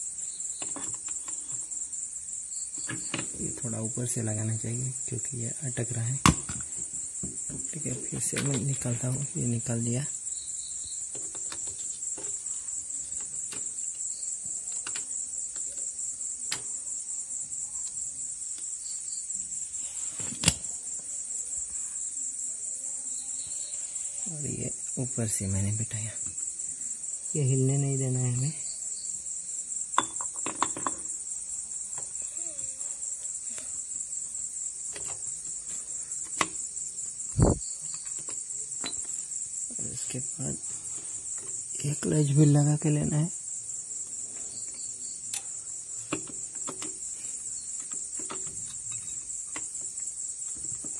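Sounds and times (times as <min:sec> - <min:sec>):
crickets chirping: 0:00.0 - 0:50.9.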